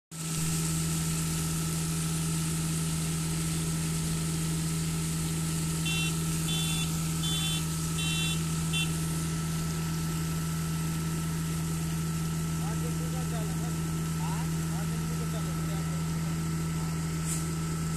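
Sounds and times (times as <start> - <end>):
diesel engine running: 0.2 - 17.9
short high-pitched beeps: 5.8 - 9.0.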